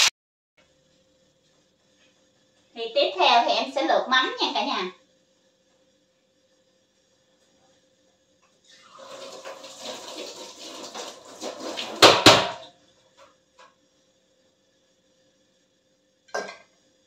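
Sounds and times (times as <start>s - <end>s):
tap water running into sink: 8.7s - 12.7s.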